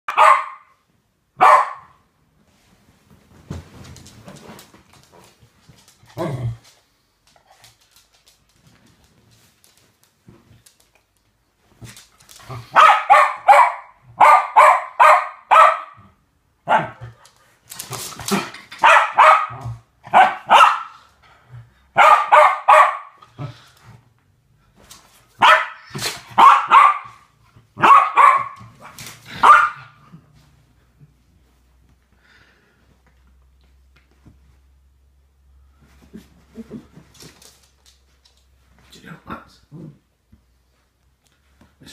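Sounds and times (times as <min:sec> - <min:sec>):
dog barking sharply: 0:00.1 - 0:00.7, 0:01.4 - 0:02.0, 0:12.7 - 0:16.0, 0:18.8 - 0:21.0, 0:22.0 - 0:23.2, 0:25.4 - 0:27.2, 0:27.8 - 0:28.6, 0:29.4 - 0:29.9.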